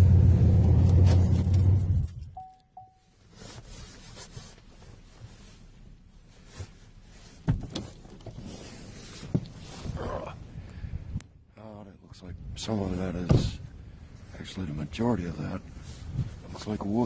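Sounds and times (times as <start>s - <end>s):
car running noise: 0.0s - 2.4s
short electronic beeps: 2.4s - 3.1s
rustling of work gloves: 3.2s - 10.0s.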